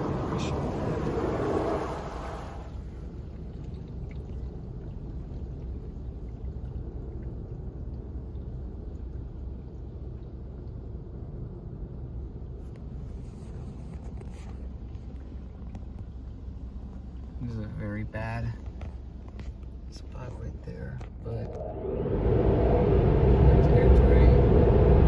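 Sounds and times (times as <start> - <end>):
car wash brushing and spraying: 0.0 - 3.3, 12.5 - 17.4
low rumble inside car wash: 0.0 - 25.0.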